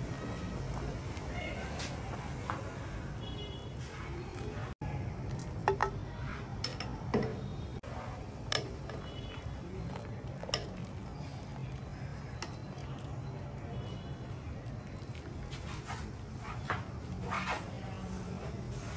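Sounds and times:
utensils and dishes clinking: 0:09.8 - 0:13.4.

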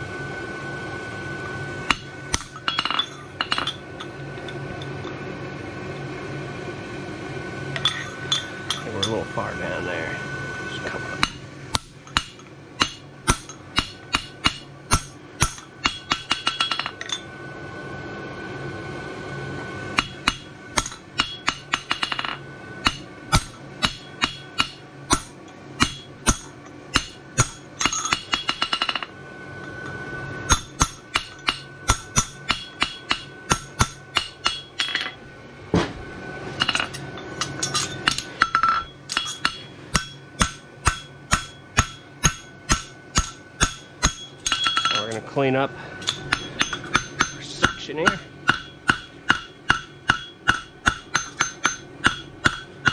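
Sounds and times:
hammer striking horseshoe on anvil: 0:01.9 - 0:04.1, 0:07.8 - 0:09.2, 0:11.2 - 0:17.2, 0:19.9 - 0:29.1, 0:30.5 - 0:35.2, 0:36.6 - 0:45.2, 0:46.0 - 0:52.9.

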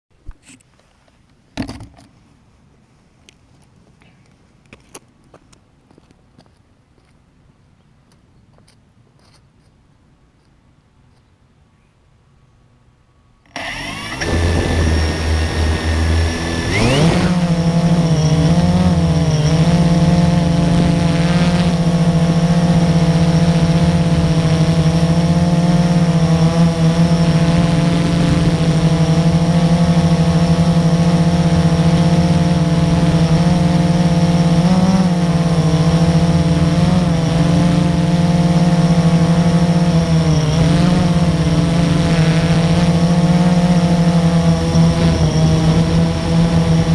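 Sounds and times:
quadcopter motors buzzing: 0:13.5 - 0:46.9.

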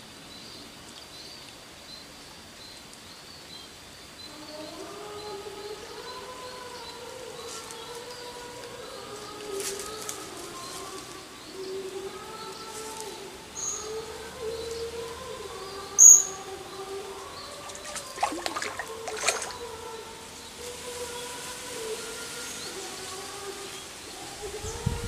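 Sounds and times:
birds calling: 0:02.6 - 0:21.3.

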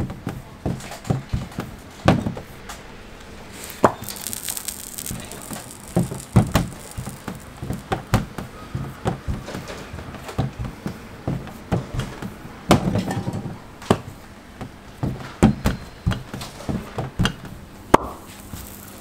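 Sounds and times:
brief hiss: 0:03.4 - 0:08.1, 0:18.3 - 0:19.0.

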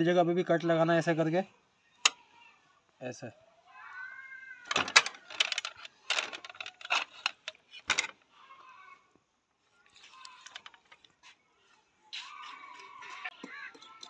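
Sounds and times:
knife clinking against metal skewers: 0:12.2 - 0:14.0.

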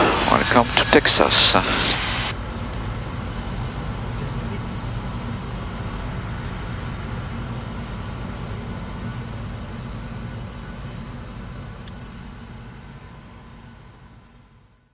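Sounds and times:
jet engine rumble and whine: 0:00.0 - 0:14.9.

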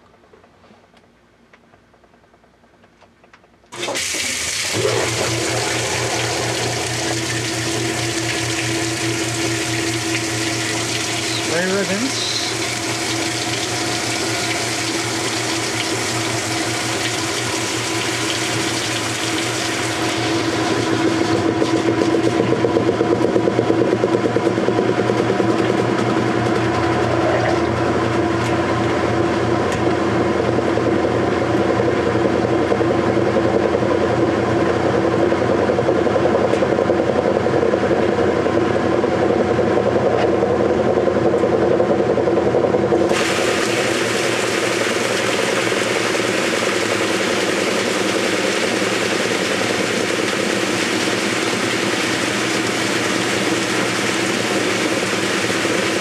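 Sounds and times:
washing machine churning: 0:03.7 - 0:56.0
water rushing into tub: 0:03.8 - 0:22.6, 0:43.0 - 0:56.0.

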